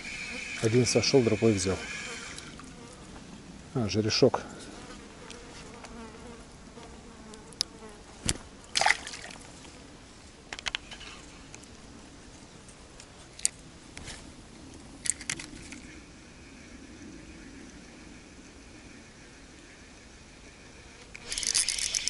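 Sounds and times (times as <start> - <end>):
buzzing hum with wavering pitch: 0.0 - 3.7, 15.6 - 22.0.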